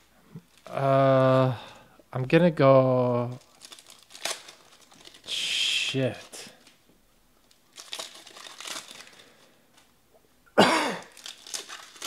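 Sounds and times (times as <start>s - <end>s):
cards and wrappers rustling: 3.0s - 6.8s, 7.4s - 9.9s, 11.0s - 12.0s
loud cough: 10.6s - 11.2s.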